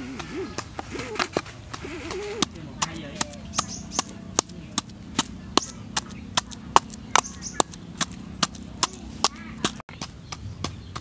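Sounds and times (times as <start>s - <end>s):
wooden pestle pounding: 0.0s - 11.0s.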